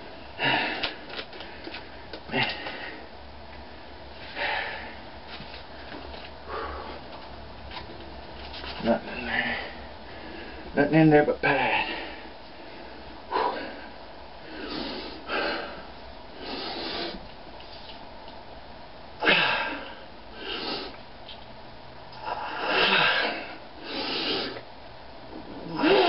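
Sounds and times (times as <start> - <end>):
man breathing hard: 0.3 - 3.1, 4.2 - 5.1, 5.7 - 7.2, 9.1 - 10.8, 11.5 - 17.2, 19.2 - 21.0, 22.2 - 24.6.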